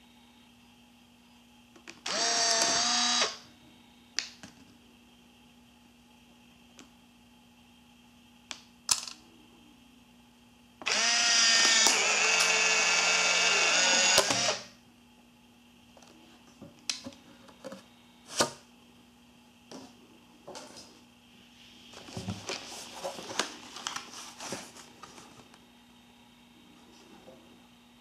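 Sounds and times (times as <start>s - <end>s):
film eject motor whirring: 2.0s - 3.4s, 10.8s - 14.7s.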